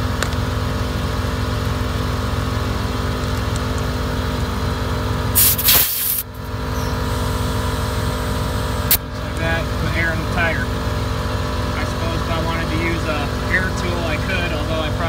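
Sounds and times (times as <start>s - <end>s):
pickup truck idling: 0.0s - 15.0s
air compressor humming: 5.1s - 15.0s
loud air hiss: 5.4s - 6.3s.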